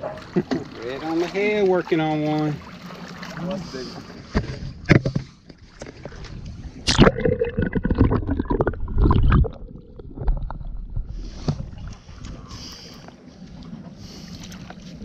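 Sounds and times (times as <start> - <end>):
steady water hiss: 0.8 - 4.4, 11.1 - 13.4, 14.0 - 15.0
underwater knocking and gurgling: 4.3 - 12.5.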